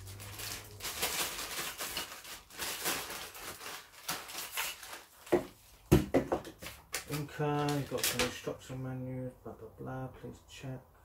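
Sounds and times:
plastic packaging crinkling: 0:00.0 - 0:05.7, 0:06.6 - 0:08.4.

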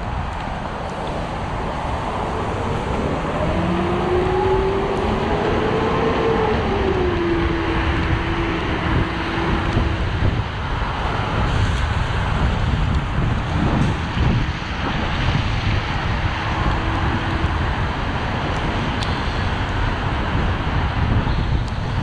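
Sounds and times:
traffic and road noise: 0:00.0 - 0:22.0
wind: 0:00.0 - 0:22.0
whine rising and falling in pitch: 0:01.6 - 0:10.8.

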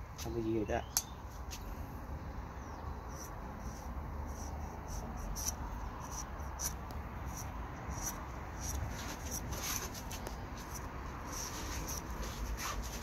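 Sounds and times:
knife blade scraping wood: 0:03.2 - 0:13.0.

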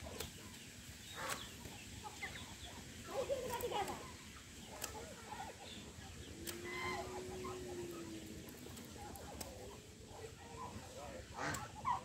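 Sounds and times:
poultry clucking: 0:00.0 - 0:12.0
long low poultry call: 0:06.4 - 0:08.6.

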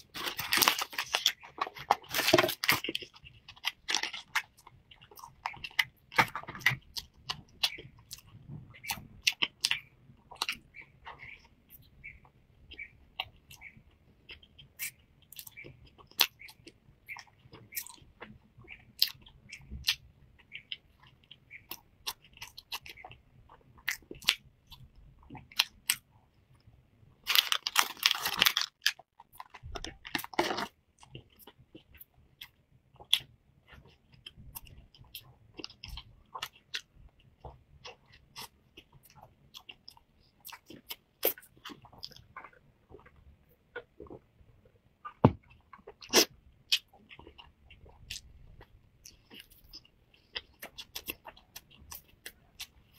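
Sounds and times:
plastic wrapper crinkling: 0:00.0 - 0:03.1, 0:27.3 - 0:30.7
chewing crisp pastry: 0:00.0 - 0:52.9.

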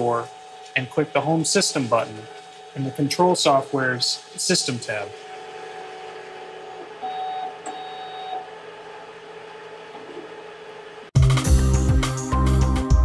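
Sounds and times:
instrument motors whirring: 0:00.0 - 0:11.1
music: 0:11.2 - 0:13.0.

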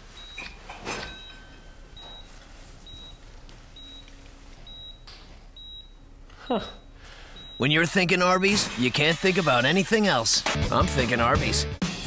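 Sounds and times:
patient monitor beeping: 0:00.1 - 0:08.8.

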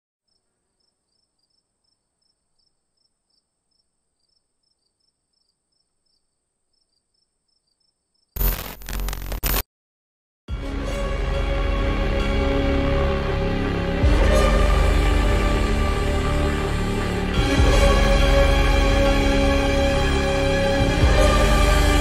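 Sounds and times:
faint cricket chirping: 0:00.3 - 0:08.4.

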